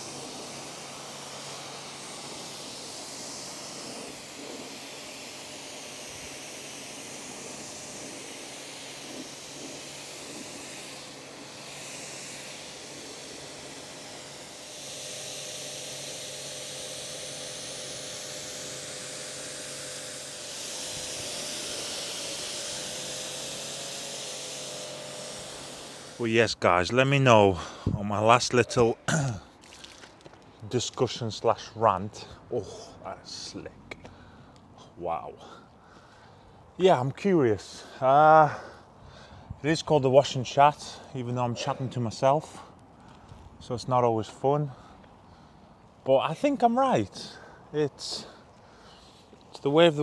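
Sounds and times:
pressure washer spraying water: 0.0 - 27.6.

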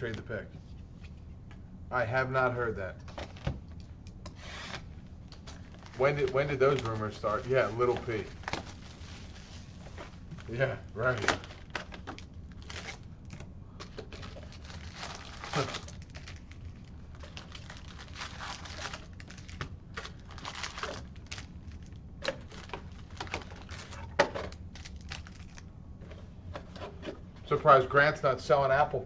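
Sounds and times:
foil wrappers crinkling: 4.6 - 25.7.

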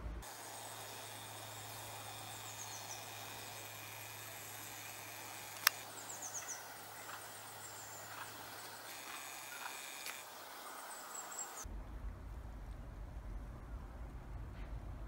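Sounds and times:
small birds chirping: 1.0 - 11.6
sharp click: 5.5 - 5.9.

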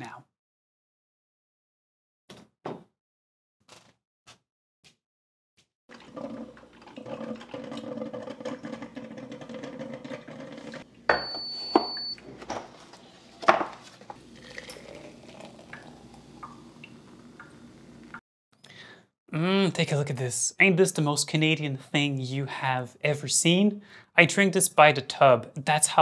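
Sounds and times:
appliance humming: 5.9 - 18.2
dishes clinking: 11.1 - 12.7
high electronic beep: 11.2 - 12.2.

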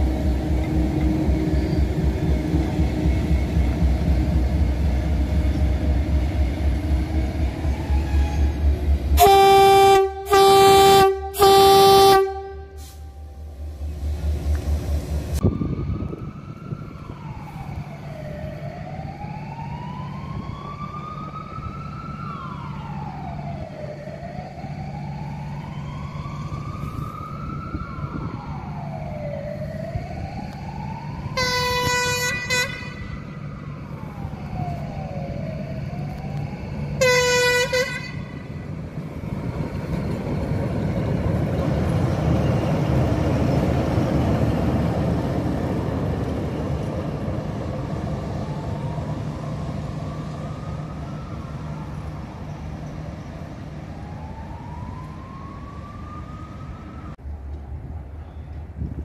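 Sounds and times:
diesel engine rumble: 0.0 - 59.0
siren wailing: 7.0 - 13.3, 15.4 - 41.0, 41.6 - 57.2
locomotive horn: 8.0 - 13.5, 31.4 - 33.3, 37.0 - 38.6
short horn blasts: 9.2 - 13.3, 37.0 - 38.2.

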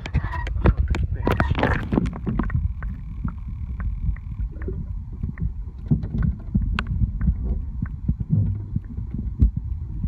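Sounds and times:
muffled underwater water rumble: 0.0 - 10.0.

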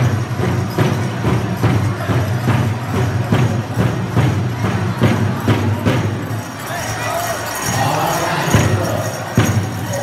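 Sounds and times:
big drum steady beat: 0.0 - 6.6
metal cones jingling: 3.8 - 10.0.

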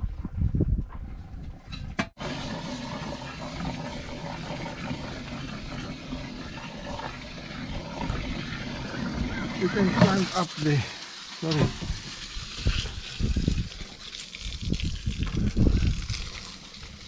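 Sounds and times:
thick liquid glugging and splashing: 2.2 - 10.6, 11.6 - 17.0.

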